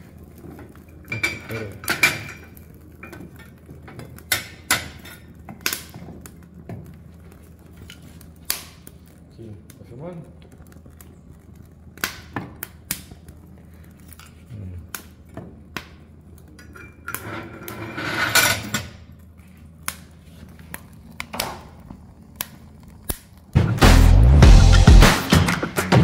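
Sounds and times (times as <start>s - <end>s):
metal scrape: 17.1s - 18.8s.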